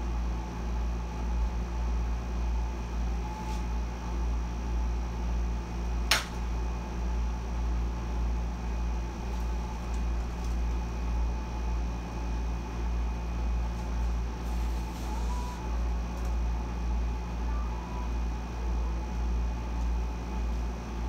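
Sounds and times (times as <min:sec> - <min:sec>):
air conditioner humming: 0:00.0 - 0:21.0.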